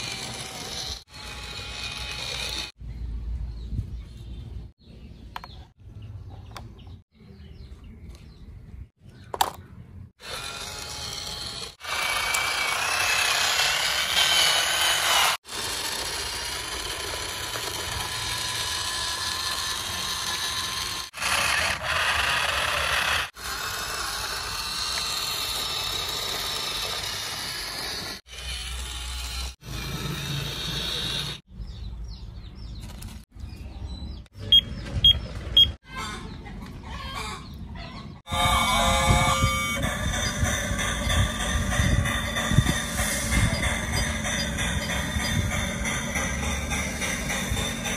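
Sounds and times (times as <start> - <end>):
small electric motors whirring: 0.0 - 2.8, 10.2 - 31.4, 38.3 - 47.9.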